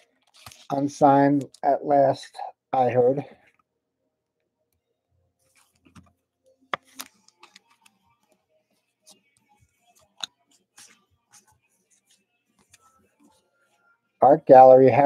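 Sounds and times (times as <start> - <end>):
cards rustling and snapping: 0.1 - 0.7, 6.7 - 8.4, 10.0 - 12.8.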